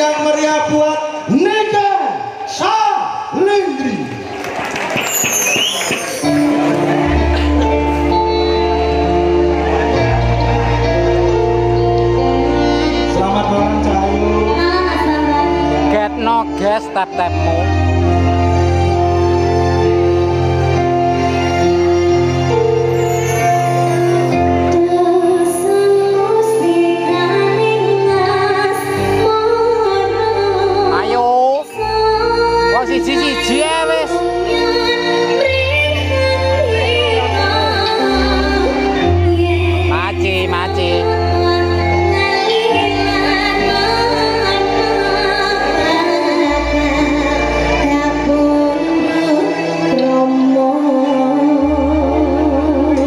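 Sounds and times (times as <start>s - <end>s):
live band playing: 0.0s - 53.0s
gamelan guitars and drums band: 4.8s - 24.8s
sustained bass line: 6.3s - 53.0s
woman singing: 11.7s - 15.9s, 24.6s - 53.0s.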